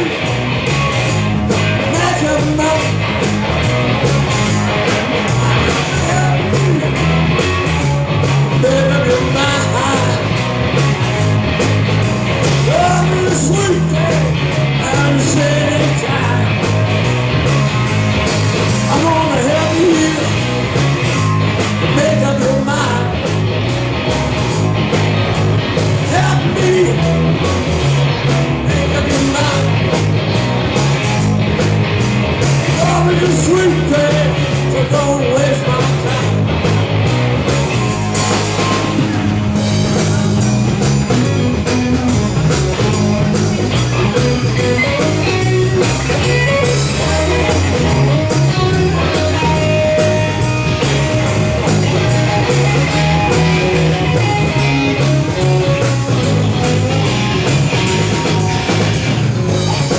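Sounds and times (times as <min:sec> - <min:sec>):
rock music: 0:00.0 - 0:59.9
person singing: 0:05.0 - 0:06.9, 0:08.6 - 0:10.3, 0:12.6 - 0:16.6, 0:18.8 - 0:20.5, 0:26.0 - 0:27.1, 0:28.6 - 0:29.8, 0:32.7 - 0:36.4.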